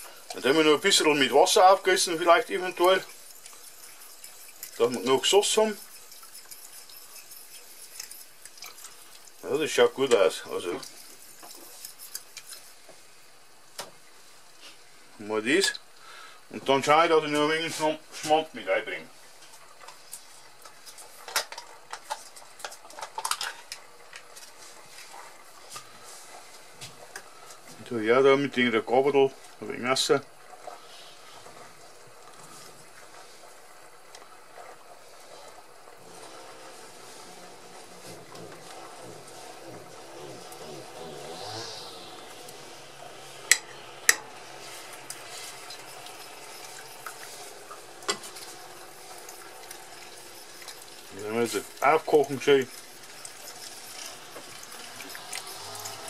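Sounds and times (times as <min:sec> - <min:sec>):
spoon stirring sauce in pot: 0:00.0 - 0:13.0, 0:37.0 - 0:56.0
steady hiss: 0:00.0 - 0:21.4, 0:24.4 - 0:56.0.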